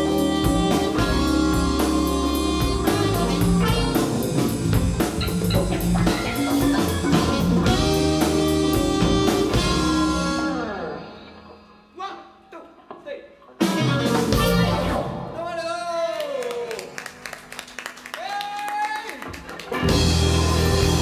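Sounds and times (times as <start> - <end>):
drums and percussion: 0.0 - 10.5, 13.6 - 15.3, 19.2 - 21.0
bass: 0.0 - 11.4, 13.6 - 15.6, 19.3 - 21.0
alto saxophone: 0.0 - 11.6, 13.6 - 15.2
electric guitar: 0.0 - 11.9, 13.6 - 15.3, 19.2 - 21.0
keyboards: 0.0 - 12.4, 13.6 - 15.4, 19.2 - 21.0
organ: 19.6 - 21.0.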